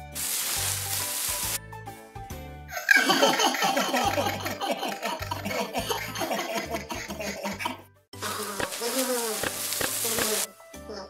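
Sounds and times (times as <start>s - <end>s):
children laughing: 2.7s - 9.2s
light music with low bass: 3.8s - 11.0s.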